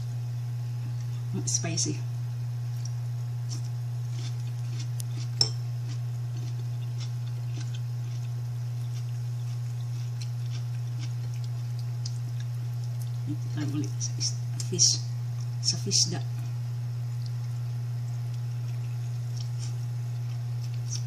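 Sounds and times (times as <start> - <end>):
steady low hum: 0.0 - 21.0
faint chewing: 2.7 - 14.7, 17.1 - 21.0.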